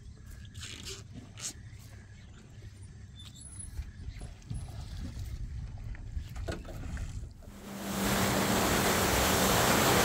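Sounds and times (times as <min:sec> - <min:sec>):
wind and water rushing: 0:04.8 - 0:10.0
boat engine hum: 0:07.4 - 0:10.0.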